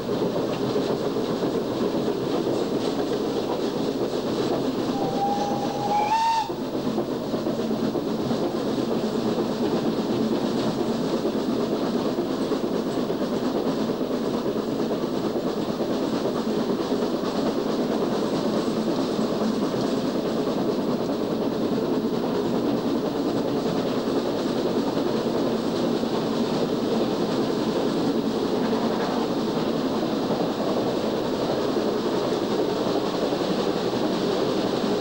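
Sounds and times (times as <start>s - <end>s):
steam locomotive rattling: 0.0s - 35.0s
steam whistle: 4.8s - 6.6s.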